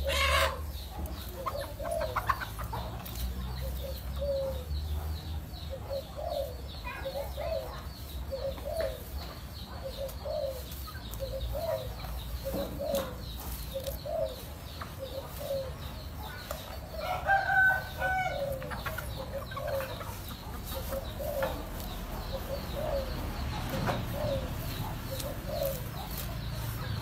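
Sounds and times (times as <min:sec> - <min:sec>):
dove cooing: 0:00.0 - 0:02.6, 0:03.6 - 0:05.0, 0:05.7 - 0:09.1, 0:09.7 - 0:27.0
drawn-out chicken call: 0:00.0 - 0:04.7, 0:05.4 - 0:27.0
chickens clucking: 0:00.0 - 0:27.0.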